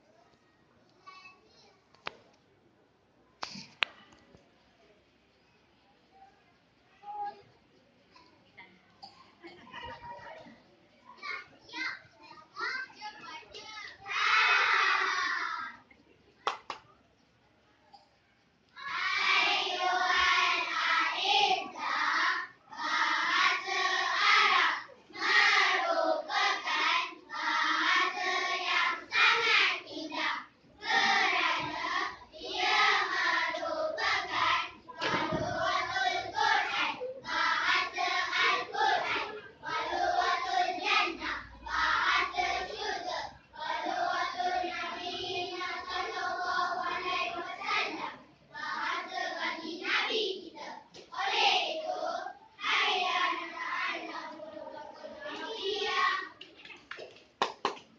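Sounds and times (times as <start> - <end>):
children's choir singing: 14.0 - 15.8, 18.8 - 56.4.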